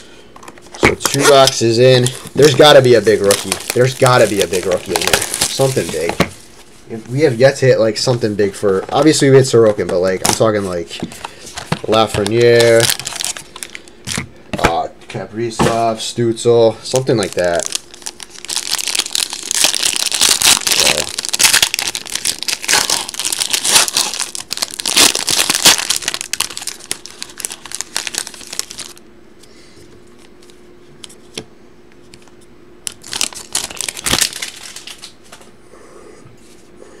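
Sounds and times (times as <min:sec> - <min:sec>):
foil wrapper tearing and crinkling: 0:01.0 - 0:06.2, 0:11.8 - 0:13.9, 0:16.9 - 0:29.0, 0:32.8 - 0:35.2.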